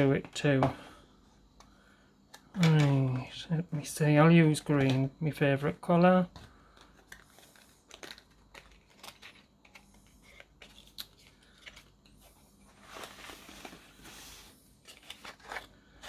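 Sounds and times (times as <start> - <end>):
papery rustle and scrape: 12.7 - 15.7.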